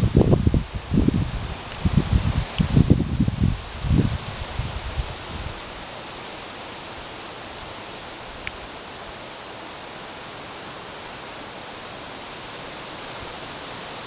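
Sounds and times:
outdoor background hiss: 0.0s - 14.0s
faint high tick: 8.4s - 8.6s.

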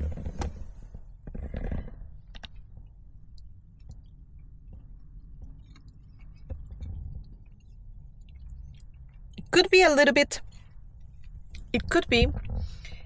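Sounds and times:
low steady hum: 0.0s - 13.0s
soft chewing: 2.2s - 9.5s, 10.4s - 11.7s.

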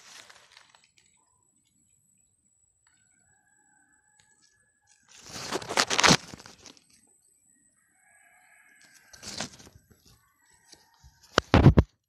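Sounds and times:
weeds rustling and crunching: 0.0s - 1.2s, 5.1s - 6.9s, 9.1s - 9.8s.

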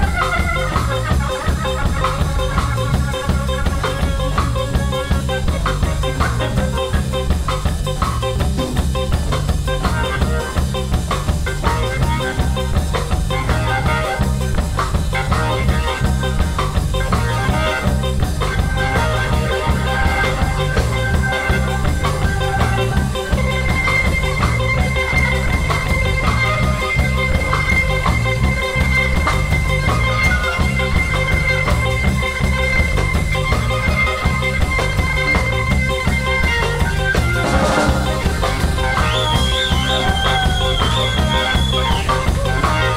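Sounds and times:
bass line: 0.0s - 42.9s
drum kit: 0.0s - 42.9s
keyboard: 0.0s - 42.9s
high held note: 37.4s - 38.7s.

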